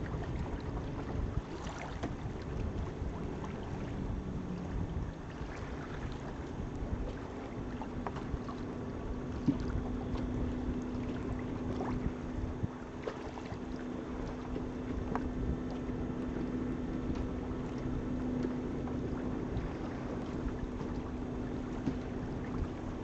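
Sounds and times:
boat engine low hum: 0.0 - 23.0
faint splashes: 0.0 - 23.0
wind on microphone: 0.0 - 23.0.

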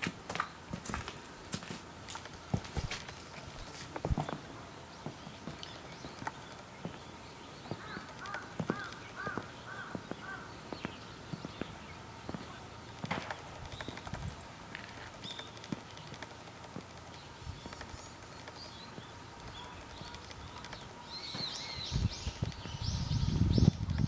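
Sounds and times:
footsteps on gravel: 0.0 - 18.0
bird calling: 2.8 - 23.8.

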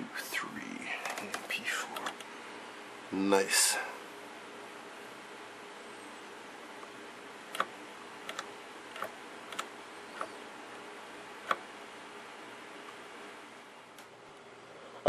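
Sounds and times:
faint steady hum: 0.0 - 15.0
switches and knobs clicking: 2.0 - 2.3, 7.5 - 10.4, 11.4 - 11.7.

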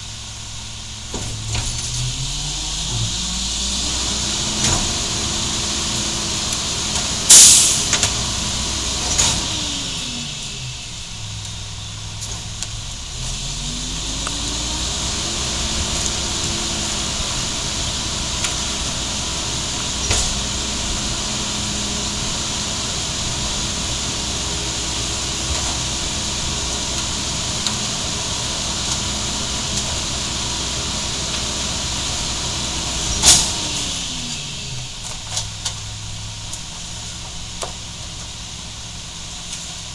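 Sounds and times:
garbage truck diesel engine revving: 0.0 - 39.9
steady hydraulic hiss: 7.3 - 8.1
loud sharp bang: 7.3 - 8.2.

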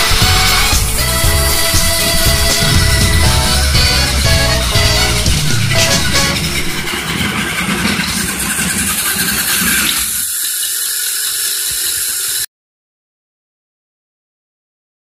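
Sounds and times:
low rumble: 0.0 - 8.6
toy train cars rattling on rails: 0.0 - 12.5
toy train motor whirr: 0.0 - 12.5.

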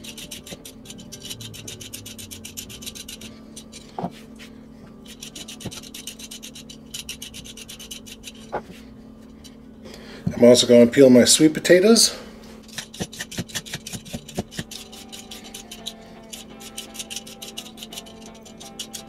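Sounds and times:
peeler scraping carrot: 0.0 - 4.0, 5.0 - 8.8, 12.6 - 19.0.

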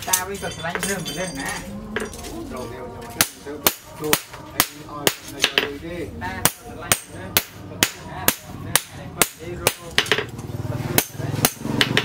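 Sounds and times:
hammer striking steel on anvil: 3.2 - 5.8, 6.4 - 10.3, 11.0 - 12.0.

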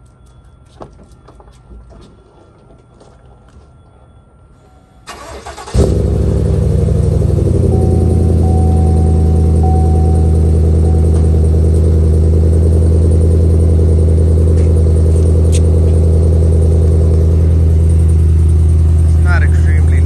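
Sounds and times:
truck engine idling: 5.1 - 20.0.

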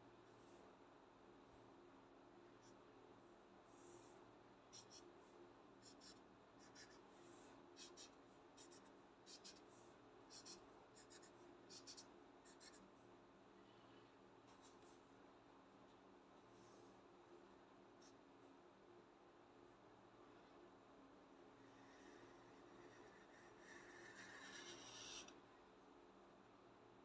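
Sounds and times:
marker scratching on paper: 4.7 - 5.1, 5.8 - 7.0, 7.8 - 12.8, 21.8 - 25.3.

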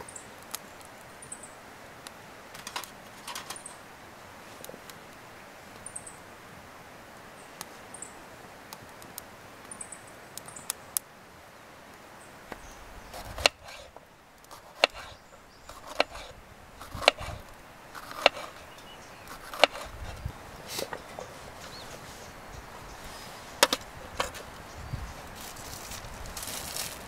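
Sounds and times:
fire crackling in stove: 0.0 - 6.2, 8.6 - 11.2, 11.9 - 27.0.

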